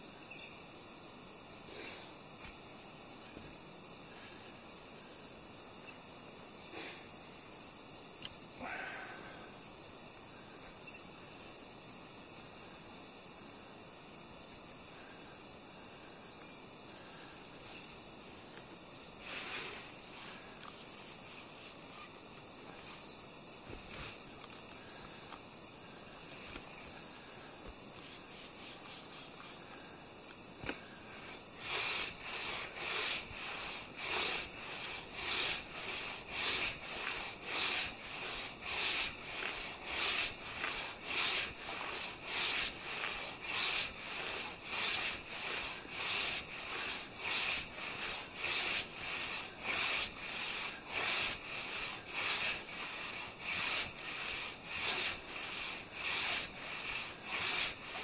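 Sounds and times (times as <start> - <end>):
hand saw rasping through log: 31.1 - 58.0.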